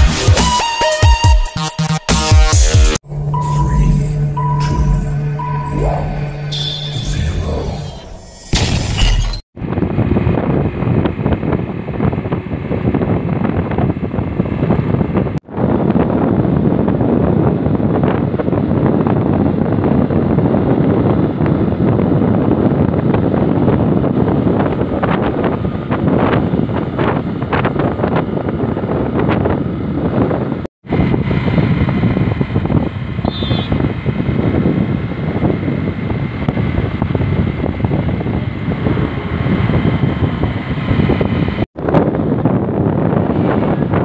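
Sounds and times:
motorcycle engine: 0:03.0 - 0:07.2, 0:31.0 - 0:41.6
road noise: 0:03.0 - 0:44.0
wind rushing over microphone: 0:03.0 - 0:44.0.

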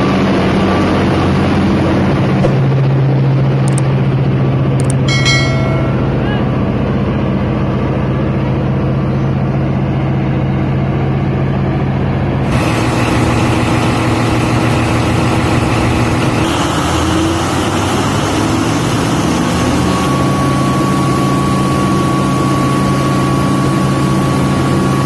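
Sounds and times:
diesel engine running: 0:00.0 - 0:25.0
diesel generator running: 0:00.0 - 0:25.0.

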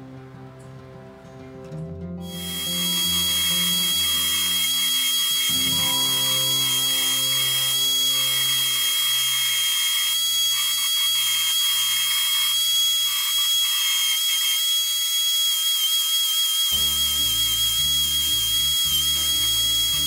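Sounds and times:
quiet background music: 0:00.0 - 0:11.2, 0:16.7 - 0:20.0
belt sander whining: 0:02.3 - 0:20.0
wood rasping on abrasive belt: 0:02.3 - 0:20.0.

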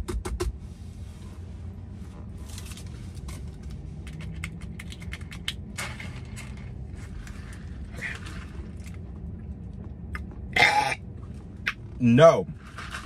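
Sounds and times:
car cabin hum: 0:00.0 - 0:13.0
drink cup packaging crackling: 0:12.6 - 0:13.0.

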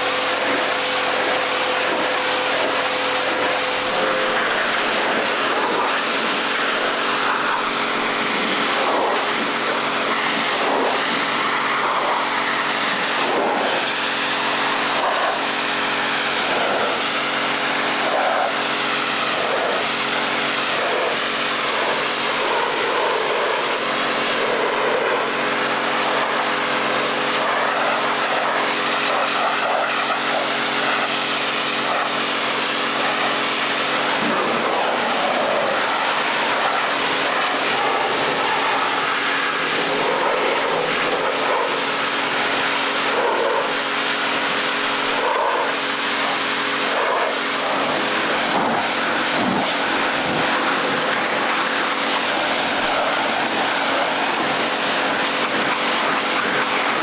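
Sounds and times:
pressure washer running: 0:00.0 - 0:57.0
water jet hissing on metal: 0:00.0 - 0:57.0.

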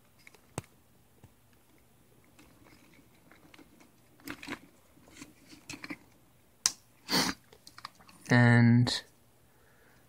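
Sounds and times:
rustling of wires and plastic: 0:01.5 - 0:06.2.

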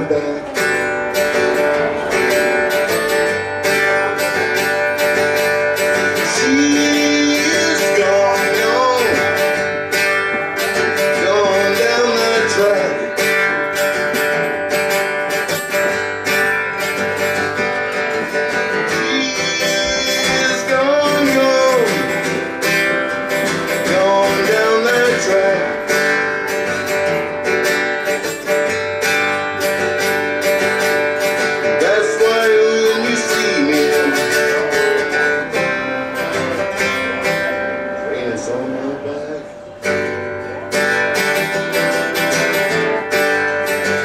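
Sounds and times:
strummed acoustic guitar: 0:00.0 - 0:44.0.

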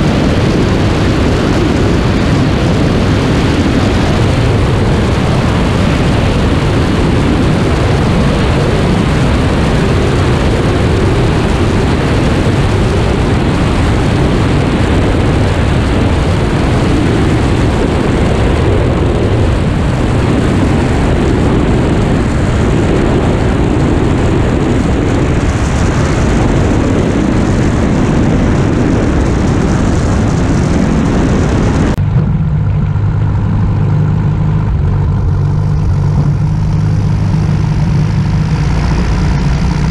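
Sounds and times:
light aircraft engine: 0:00.0 - 0:39.9
wind rush: 0:00.0 - 0:39.9.

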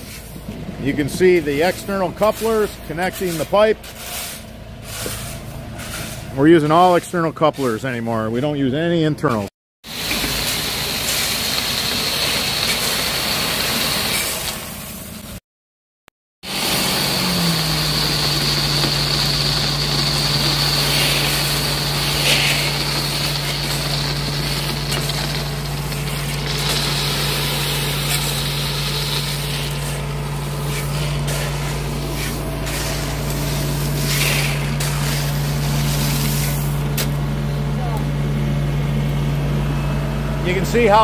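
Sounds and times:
small engine running: 0:16.4 - 0:38.6
crushed stone rattling down steel ramp: 0:18.9 - 0:28.5.

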